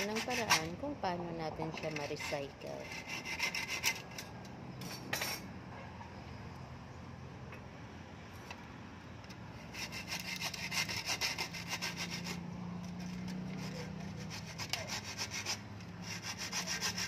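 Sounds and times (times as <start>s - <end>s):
hacksaw cutting plastic: 0.0s - 0.8s, 1.7s - 4.3s, 9.6s - 17.0s.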